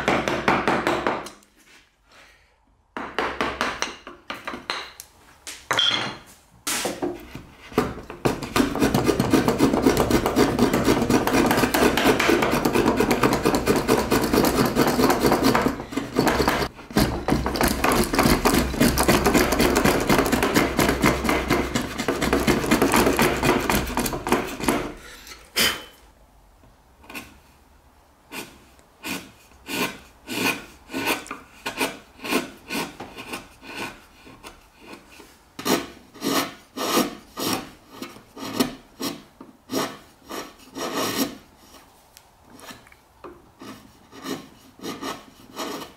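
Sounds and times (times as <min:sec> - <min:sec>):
chisel paring wood: 0:00.0 - 0:01.4, 0:03.0 - 0:05.0, 0:06.7 - 0:25.0, 0:28.4 - 0:35.0
router plane scraping wood: 0:08.3 - 0:25.0, 0:43.6 - 0:45.9.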